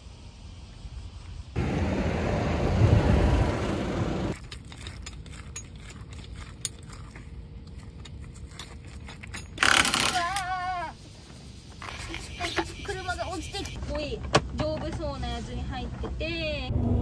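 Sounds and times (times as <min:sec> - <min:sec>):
loud rushing noise: 0:01.6 - 0:04.3.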